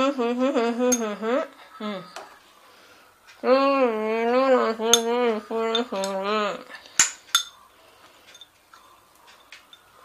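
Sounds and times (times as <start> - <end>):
spoon clinking against glass bowl: 4.9 - 6.1, 7.0 - 7.7, 8.3 - 10.0.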